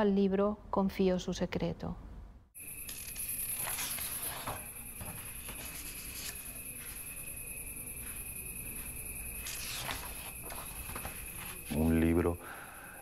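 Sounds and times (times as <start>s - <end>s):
high-pitched cricket-like trill: 2.6s - 13.0s
thin steady tone: 2.6s - 13.0s
book pages turning: 2.8s - 7.2s, 9.3s - 11.7s.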